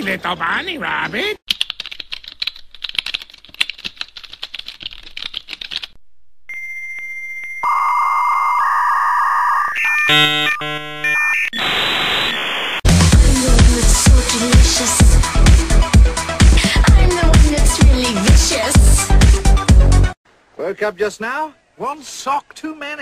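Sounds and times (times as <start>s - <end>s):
computer keyboard typing: 1.5s - 6.0s.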